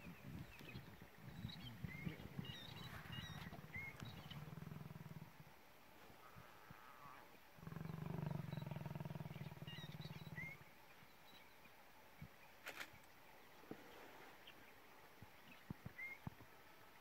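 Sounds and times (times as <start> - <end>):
lion rumbling: 0.3 - 10.6.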